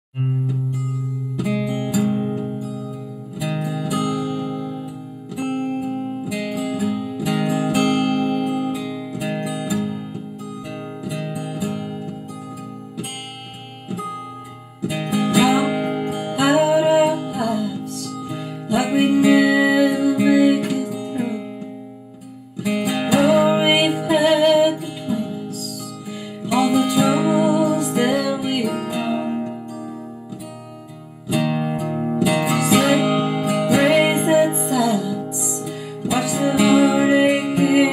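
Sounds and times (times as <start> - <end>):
acoustic guitar strumming: 0.2 - 37.9
woman singing: 15.1 - 21.8, 22.8 - 29.9, 32.2 - 37.9.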